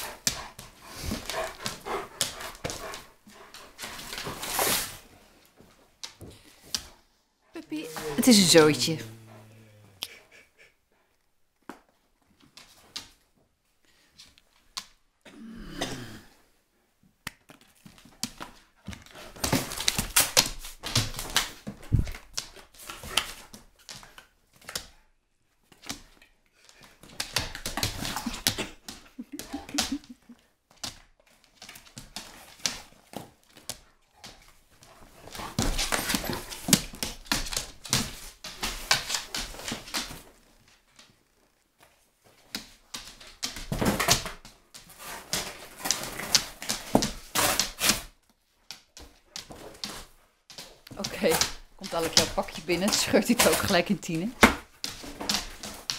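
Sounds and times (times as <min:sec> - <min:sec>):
dog tearing cardboard: 0:44.8 - 0:48.1.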